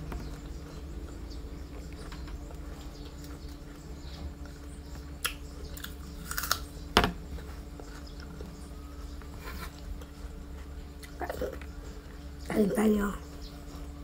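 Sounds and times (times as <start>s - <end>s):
apple crunching: 5.1s - 8.4s.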